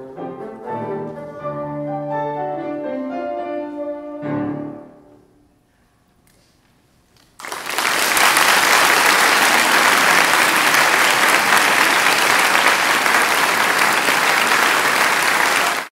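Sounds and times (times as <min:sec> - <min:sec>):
audience applauding: 0:07.3 - 0:15.9.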